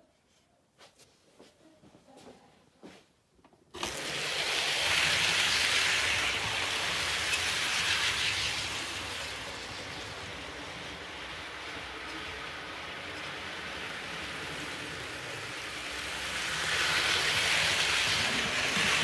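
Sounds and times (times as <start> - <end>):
model train rumbling on track: 3.8 - 19.0.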